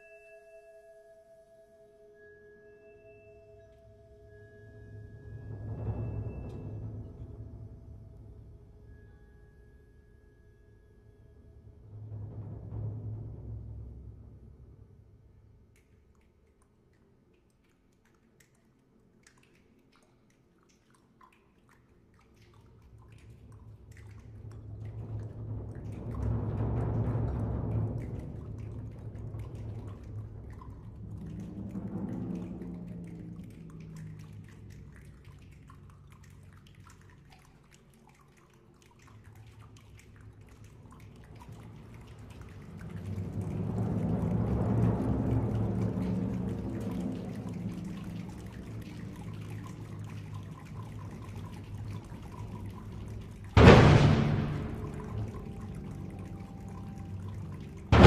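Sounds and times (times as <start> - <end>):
timpani roll: 5.3 - 8.3, 11.7 - 15.2, 24.4 - 35.1, 40.8 - 58.0
soft clicks and drip-like taps: 15.3 - 53.8.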